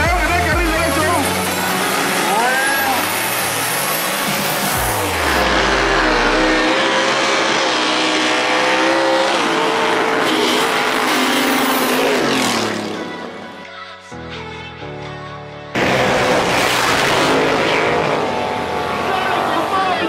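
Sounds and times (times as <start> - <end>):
music: 0.0 - 6.5, 12.7 - 17.2
racing car engines accelerating: 0.0 - 13.5, 15.7 - 20.0.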